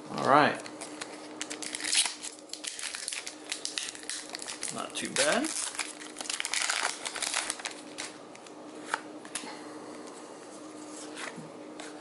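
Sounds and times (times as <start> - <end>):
cards and foil wrapper rustling: 0.7 - 9.4.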